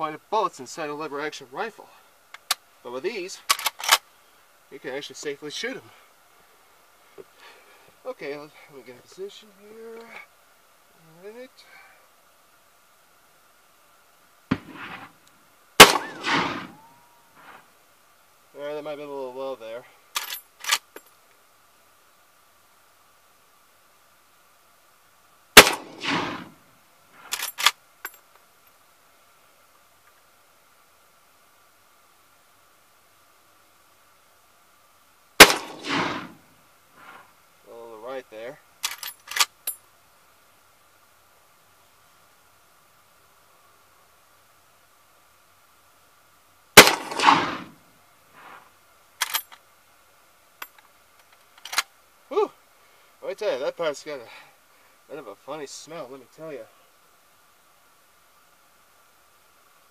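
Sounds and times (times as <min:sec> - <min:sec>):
small click: 0:02.3 - 0:02.6
rifle lever metallic clicks: 0:03.5 - 0:04.0, 0:20.2 - 0:21.0, 0:27.3 - 0:28.2, 0:38.8 - 0:39.8, 0:49.2 - 0:49.6, 0:50.6 - 0:51.9
rifle shot with echo: 0:14.5 - 0:15.1, 0:15.8 - 0:17.6, 0:25.6 - 0:26.6, 0:35.4 - 0:36.4, 0:46.8 - 0:47.7.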